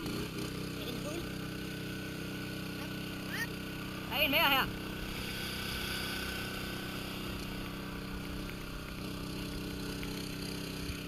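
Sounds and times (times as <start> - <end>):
machine hum with low buzz: 0.0 - 11.0.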